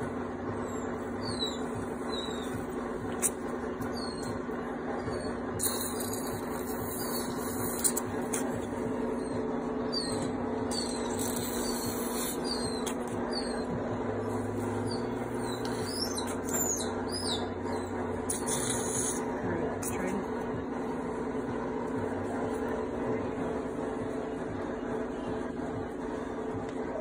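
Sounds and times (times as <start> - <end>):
steady hum: 0.0 - 27.0
puppies squeaking: 0.5 - 20.1.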